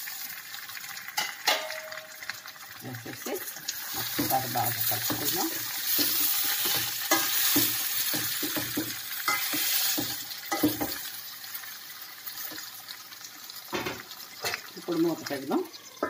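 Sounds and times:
masala sizzling: 0.0 - 16.0
spoon scraping in steel pan: 3.9 - 11.0.

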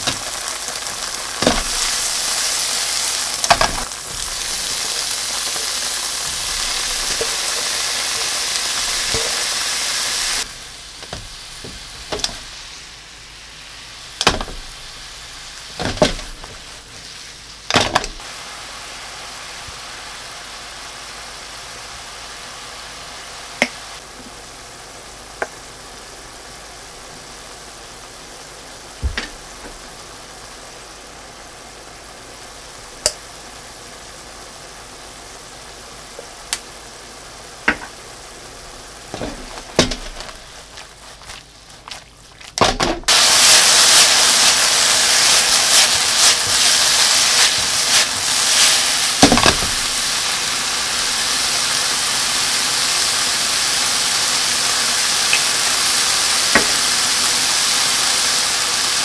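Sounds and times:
food sizzling in oil: 0.0 - 59.0
spatula knocking and scraping pan: 3.4 - 12.6, 14.2 - 14.9, 15.8 - 16.8, 37.7 - 38.0, 39.1 - 42.0.

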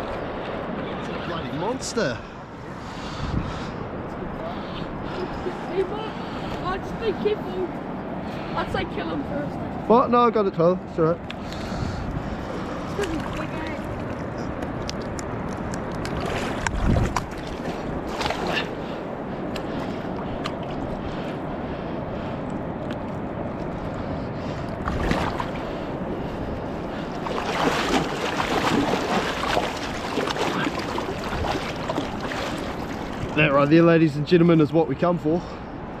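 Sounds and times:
wind noise on microphone: 3.0 - 4.4, 11.6 - 13.6, 14.4 - 18.6
water sloshing and splashing: 11.4 - 34.4.

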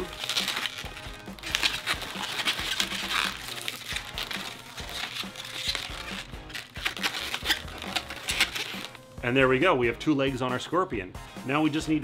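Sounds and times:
balloons rubbing and squeaking: 0.0 - 9.0.

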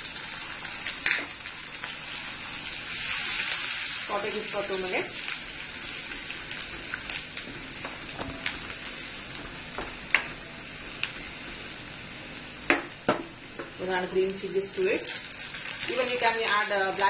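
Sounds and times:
garlic sizzling in oil: 0.0 - 17.0.

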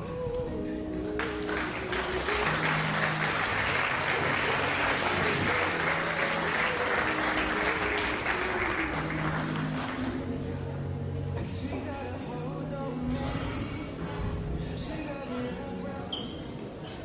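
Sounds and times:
backing music: 0.0 - 16.1
audience applauding: 0.9 - 10.2.

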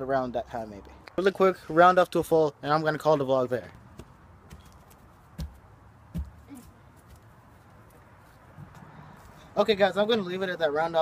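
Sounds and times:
faint outdoor background: 0.0 - 11.0
thuds on grass: 4.0 - 7.2.

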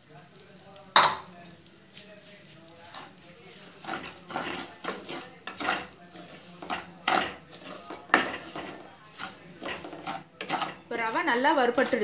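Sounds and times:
sharp knock against pan: 1.0 - 1.2
spatula scraping in a pan: 1.4 - 12.0.

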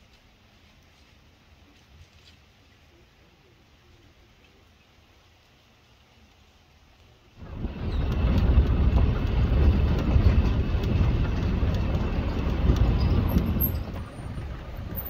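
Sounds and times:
vehicle engine and road rumble: 0.0 - 15.0
faint rattles: 7.4 - 15.0.

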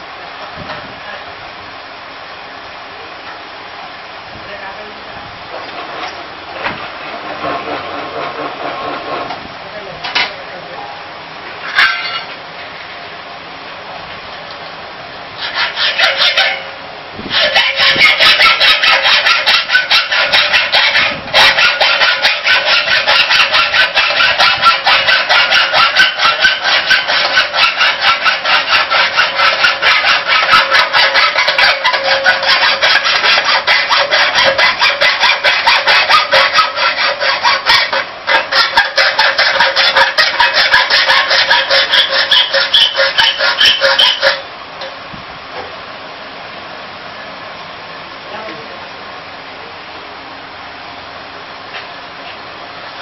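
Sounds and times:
metal rollers rasping and squealing: 5.5 - 9.4, 11.6 - 12.4, 15.4 - 44.5.

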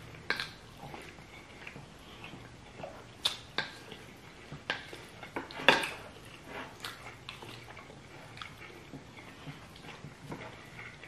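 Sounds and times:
wooden spoons scraping plates: 3.7 - 11.0.

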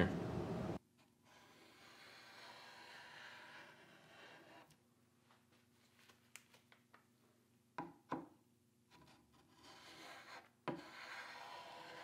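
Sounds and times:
paint scraper scraping wood: 1.0 - 4.7, 9.0 - 12.0.

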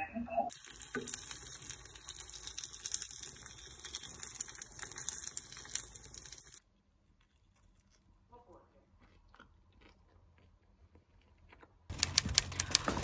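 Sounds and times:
dumplings sizzling in a frying pan: 0.5 - 6.6.

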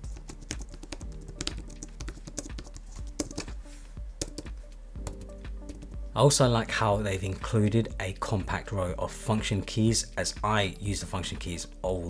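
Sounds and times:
background music: 0.0 - 12.0
keyboard typing clicks: 0.2 - 3.5, 4.2 - 5.8.

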